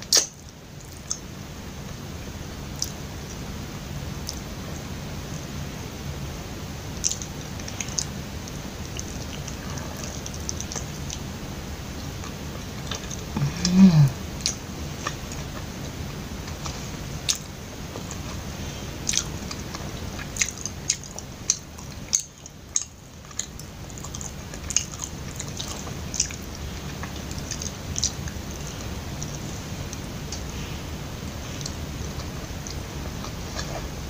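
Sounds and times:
close-miked chewing: 7.0s - 13.7s, 14.4s - 34.0s.

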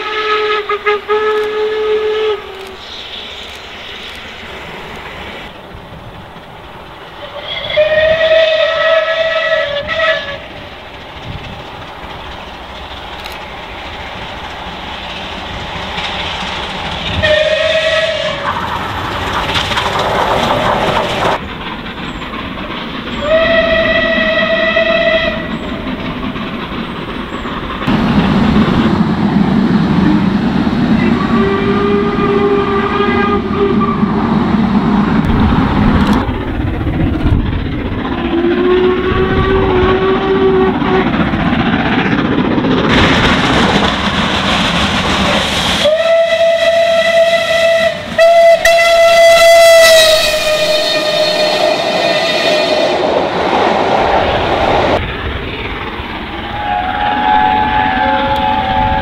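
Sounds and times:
steam locomotive whistle: 0.0s - 3.0s, 7.2s - 10.6s, 17.2s - 18.5s, 23.1s - 25.7s, 30.9s - 34.2s, 38.2s - 41.2s, 45.8s - 53.1s, 56.4s - 59.0s
train passing with rumble: 0.0s - 59.0s.

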